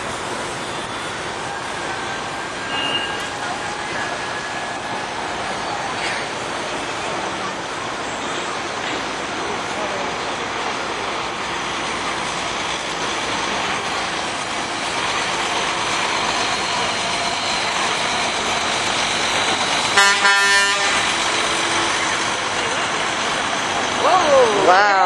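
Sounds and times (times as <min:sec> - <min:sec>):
truck engine passing: 0:00.0 - 0:25.0
truck horn blast: 0:02.6 - 0:03.4, 0:20.0 - 0:22.0.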